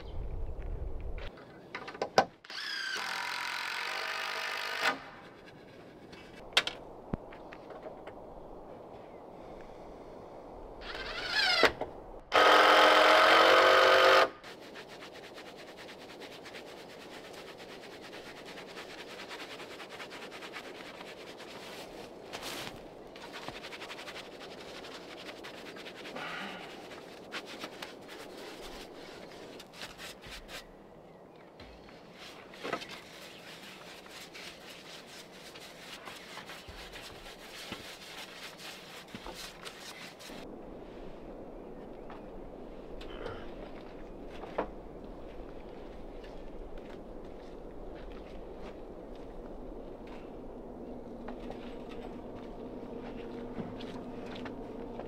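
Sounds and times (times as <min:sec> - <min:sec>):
power drill driving into wood: 0:02.5 - 0:05.1, 0:10.8 - 0:14.4.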